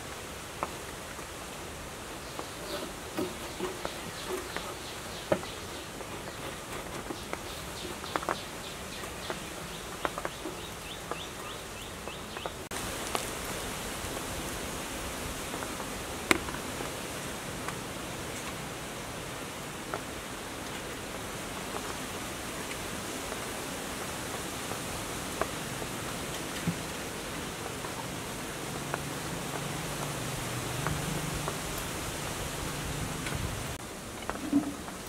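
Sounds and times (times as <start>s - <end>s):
steady hiss: 0.0s - 35.0s.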